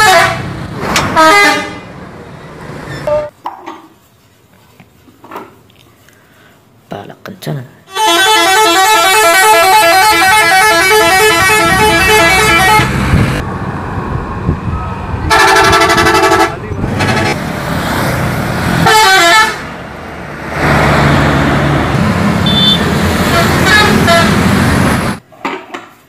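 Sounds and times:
multi-tone bus horn warbling: 0:00.0 - 0:00.5, 0:01.1 - 0:01.9, 0:07.9 - 0:13.2, 0:15.3 - 0:17.4, 0:18.8 - 0:19.7, 0:22.4 - 0:24.6
bus engine running: 0:08.3 - 0:25.2.

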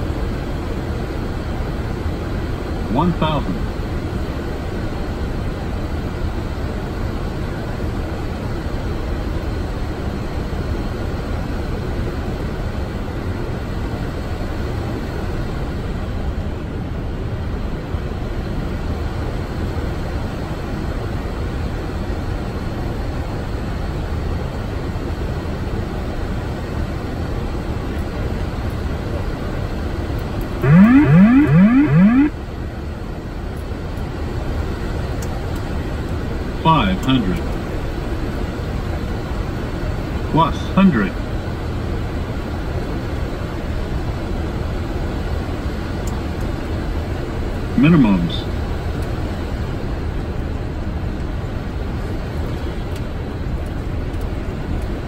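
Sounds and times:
rising siren-like warning tones: 0:30.6 - 0:32.4.

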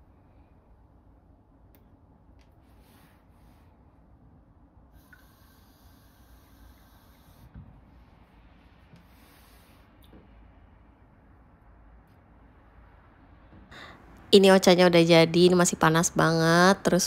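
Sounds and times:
faint hiss: 0:04.9 - 0:10.6.

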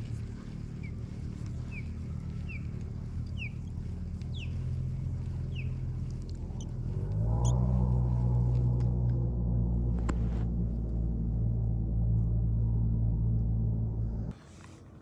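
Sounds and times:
ambient synth music: 0:00.0 - 0:14.3
rising synth sweep: 0:06.5 - 0:14.3.

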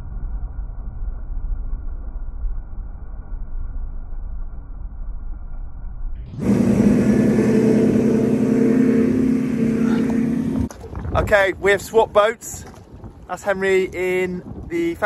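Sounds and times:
wind: 0:00.0 - 0:15.0
outboard engine droning: 0:06.3 - 0:15.0
water rushing: 0:06.3 - 0:15.0.

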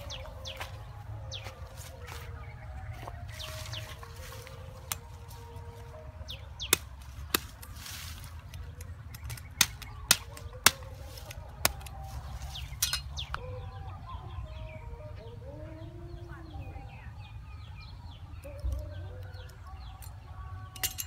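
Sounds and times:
birds chirping: 0:00.0 - 0:21.0
cleaver chopping bamboo: 0:06.6 - 0:12.0.

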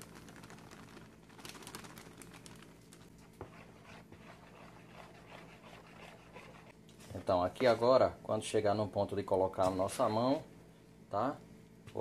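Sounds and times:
flour pouring from paper bag: 0:00.0 - 0:02.8
low steady hum: 0:00.0 - 0:12.0
hand mixing flour in bowl: 0:01.8 - 0:07.8.

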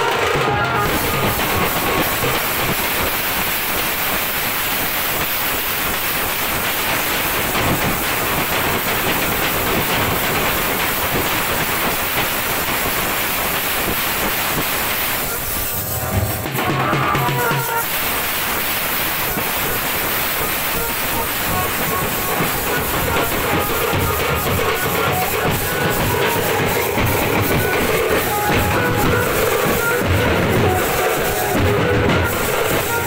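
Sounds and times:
drums and hand cymbals clattering: 0:00.0 - 0:33.0
melody: 0:20.8 - 0:33.0.

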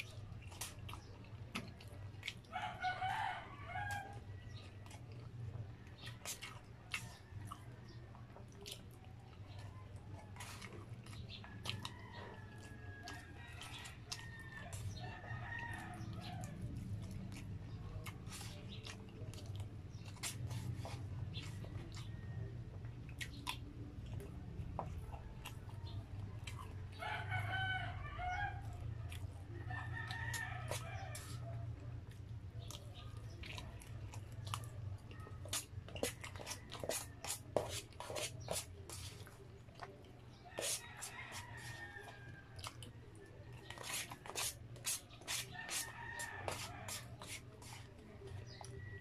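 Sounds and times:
chewing and mouth sounds: 0:00.0 - 0:03.1, 0:03.9 - 0:27.5, 0:28.6 - 0:49.0
rooster crowing: 0:02.5 - 0:04.2, 0:27.0 - 0:28.7.

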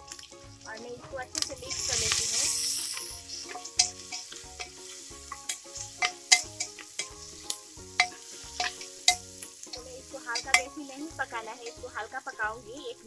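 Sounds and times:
onions sizzling in oil: 0:00.0 - 0:13.0
metal spoon clinking on pot: 0:02.8 - 0:07.2, 0:08.0 - 0:10.8.

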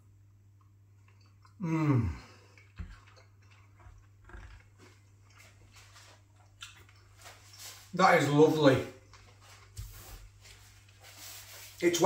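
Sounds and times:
man chewing: 0:00.2 - 0:07.9
man humming mmm: 0:01.6 - 0:02.4.

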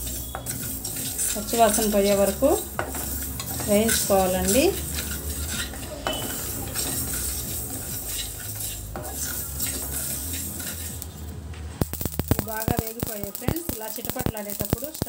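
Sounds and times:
spatula scraping metal pan: 0:00.0 - 0:11.3
seeds rattling over metal: 0:00.0 - 0:15.0.

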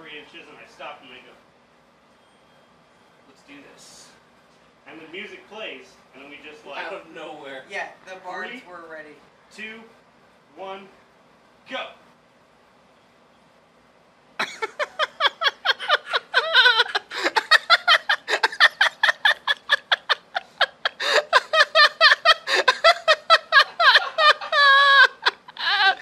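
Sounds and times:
person laughing hard: 0:14.4 - 0:26.0.

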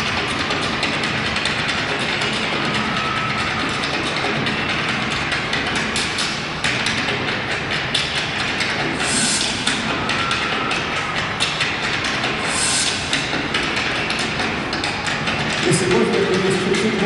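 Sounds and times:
faint music: 0:00.0 - 0:17.0
rapid percussive knocks and clicks: 0:00.0 - 0:17.0.

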